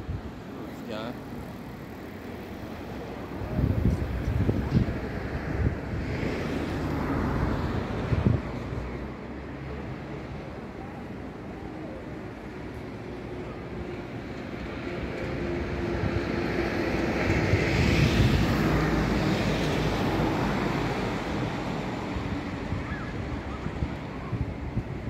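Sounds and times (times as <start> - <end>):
wind rumble on microphone: 1.6 - 13.0, 13.6 - 25.0
engine passing by: 1.8 - 10.6.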